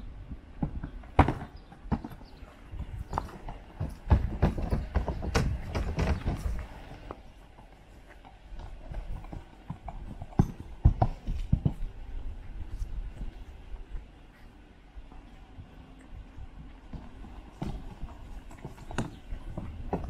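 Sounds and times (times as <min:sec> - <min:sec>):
hooves on wooden platforms: 0:00.3 - 0:20.0.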